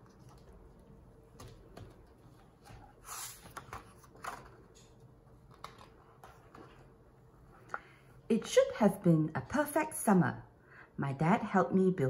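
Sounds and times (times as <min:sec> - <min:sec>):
book pages turning: 0:00.0 - 0:07.1.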